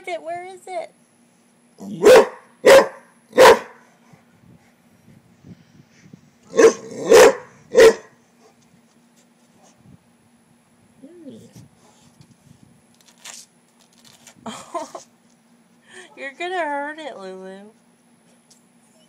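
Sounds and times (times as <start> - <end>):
dog barking loudly: 2.0 - 3.8, 6.5 - 8.2.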